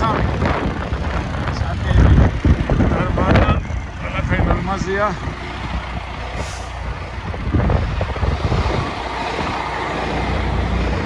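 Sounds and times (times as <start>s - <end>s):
motor vehicle running: 0.0s - 11.0s.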